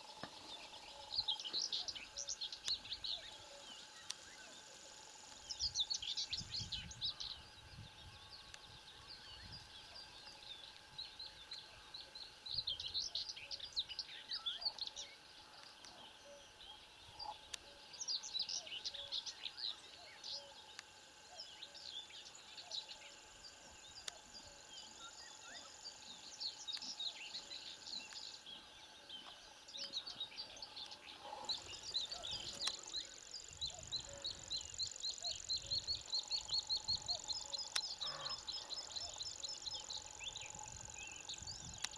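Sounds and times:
songbirds singing and chirping: 0.0s - 41.9s
high insect trill: 16.4s - 41.9s.

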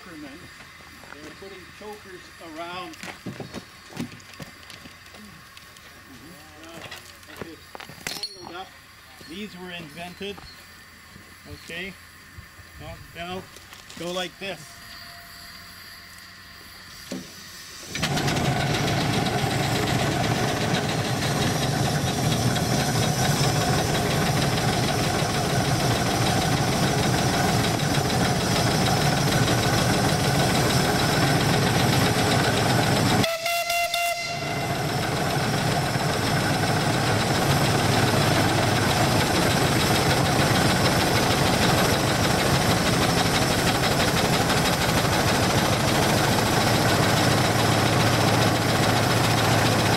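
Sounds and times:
steam engine running: 0.0s - 6.8s, 8.4s - 49.9s
steam whistle blast: 33.2s - 35.2s.

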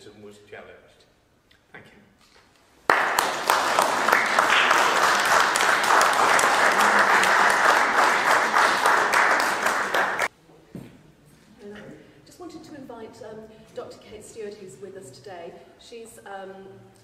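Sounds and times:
audience applauding: 2.9s - 10.3s.

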